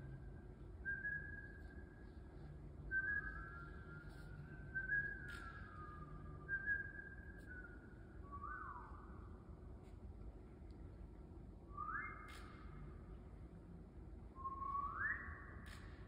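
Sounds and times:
hand whistling: 0.1s - 9.3s, 11.7s - 13.1s, 14.4s - 16.0s.

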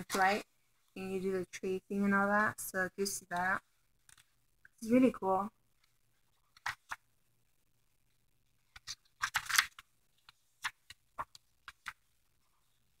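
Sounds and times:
paper pages rustling: 0.0s - 0.4s, 3.4s - 4.4s, 5.8s - 7.1s, 8.5s - 13.0s.

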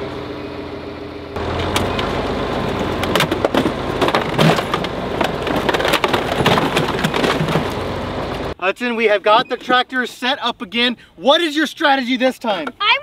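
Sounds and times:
tractor engine running: 0.0s - 8.6s
sharp cracks and crunches: 2.6s - 8.4s.

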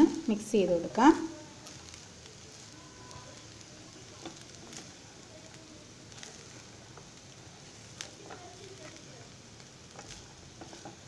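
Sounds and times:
rice sizzling in frying pan: 0.0s - 11.0s
spatula scraping pan: 9.9s - 11.0s.

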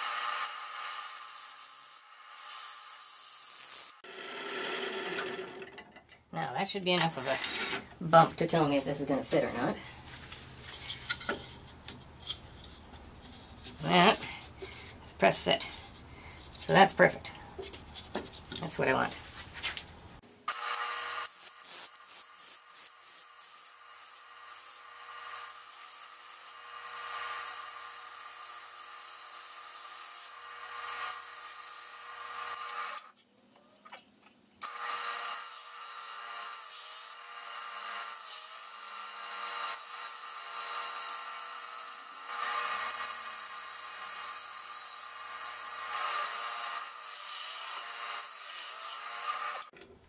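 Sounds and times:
wood lathe humming: 4.0s - 5.8s.

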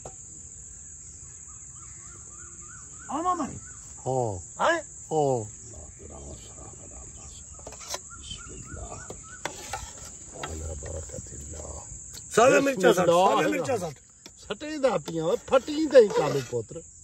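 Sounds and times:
insects shrilling: 0.0s - 17.0s
bird cawing: 1.4s - 4.1s, 7.5s - 9.8s.

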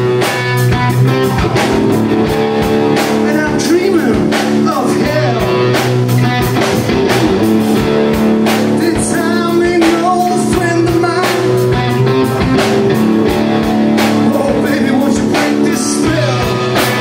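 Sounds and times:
drum kit: 0.0s - 17.0s
electric guitar chords: 0.0s - 17.0s
man singing: 3.2s - 5.8s, 8.7s - 12.0s, 14.1s - 17.0s.

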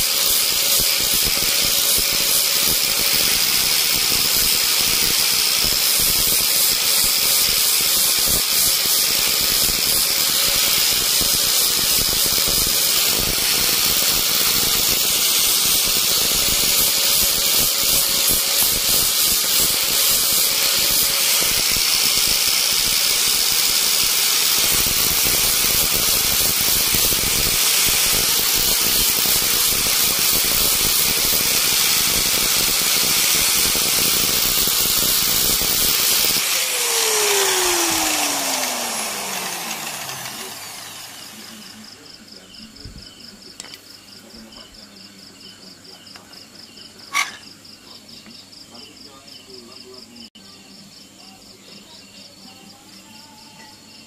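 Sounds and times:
electric carving tool on wood: 0.0s - 41.8s.

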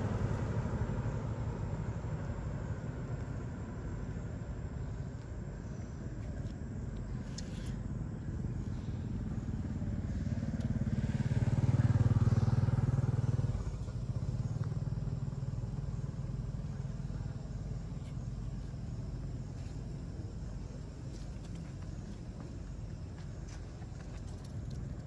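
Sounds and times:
vehicle engine passing: 0.0s - 3.2s, 8.3s - 18.0s.

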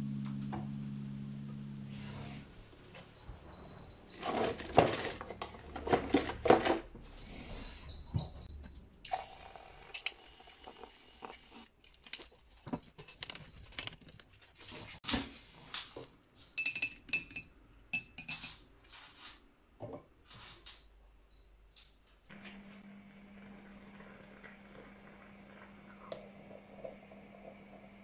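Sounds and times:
milk frother whisking milk: 9.1s - 11.7s.

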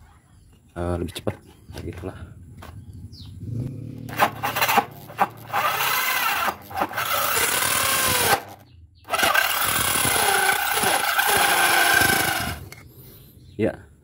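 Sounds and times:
electric drill motor: 4.1s - 12.8s
hole saw grinding through wood: 4.1s - 12.8s.

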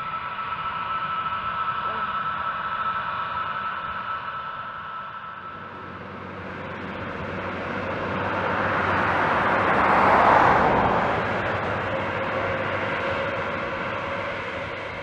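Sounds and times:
jet engines running: 0.0s - 15.0s.

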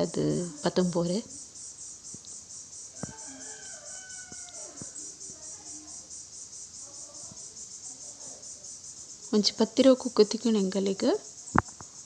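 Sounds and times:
insects chirping: 0.0s - 12.0s
rooster crowing: 2.9s - 5.2s.

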